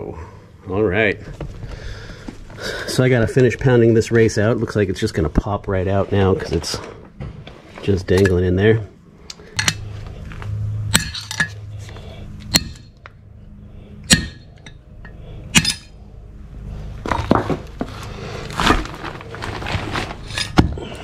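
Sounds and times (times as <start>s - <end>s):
metallic clinks and rattling: 9.3s - 9.9s, 10.9s - 11.8s
hammer striking metal: 9.6s - 9.8s, 10.9s - 11.6s, 12.5s - 12.9s, 14.0s - 16.0s.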